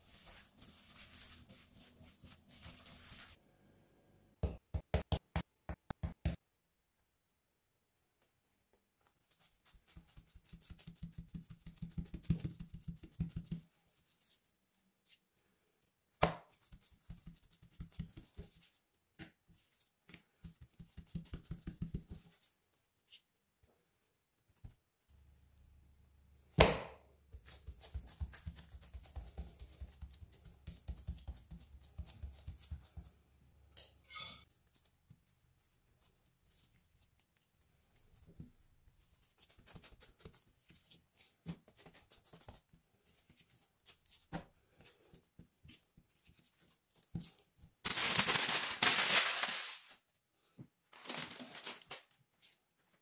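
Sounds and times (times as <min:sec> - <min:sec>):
soft taps patting dough: 0:09.9 - 0:13.7, 0:26.6 - 0:33.2.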